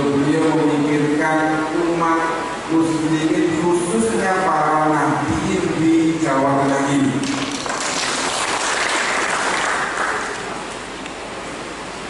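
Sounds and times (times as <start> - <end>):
man speaking into a microphone: 0.0 - 7.3
audience applauding: 7.2 - 10.7.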